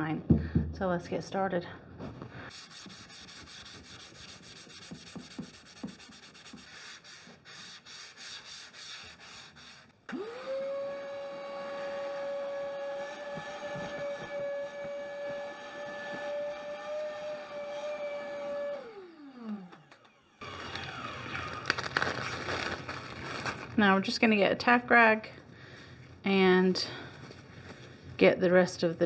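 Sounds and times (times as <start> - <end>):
sanding sponge rasping on wood: 2.5 - 9.9
vacuum motor whine: 10.1 - 23.8.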